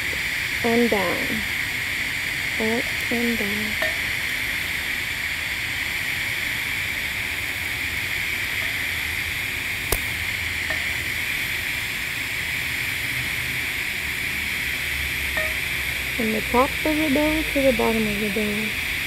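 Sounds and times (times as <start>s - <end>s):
welding arc hissing: 0.0s - 19.0s.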